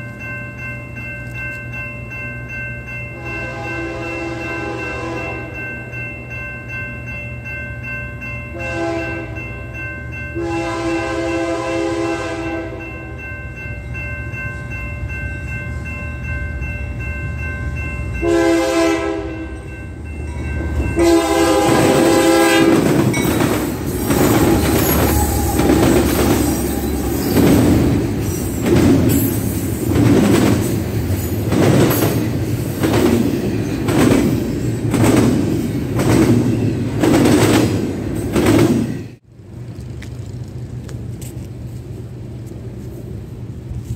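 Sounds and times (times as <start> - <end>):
crossing bell ringing: 0.0 - 39.2
train rumbling past: 0.0 - 43.9
locomotive air horn: 3.2 - 5.6, 8.6 - 9.4, 10.4 - 12.9, 18.2 - 19.4, 21.0 - 22.9, 23.9 - 27.7
train wheels clacking: 19.6 - 39.2.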